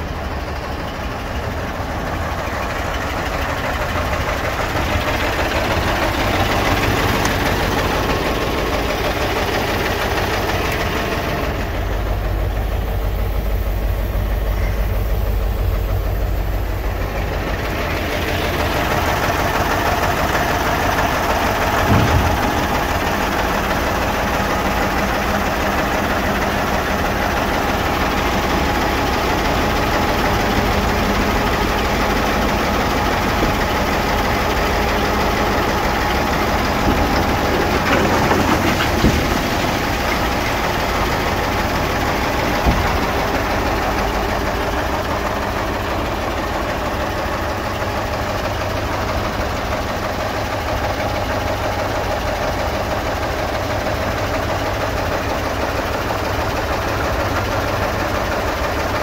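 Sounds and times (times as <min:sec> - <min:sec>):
diesel engine idling: 0:00.0 - 0:59.0
thump: 0:21.7 - 0:22.7, 0:42.5 - 0:43.2.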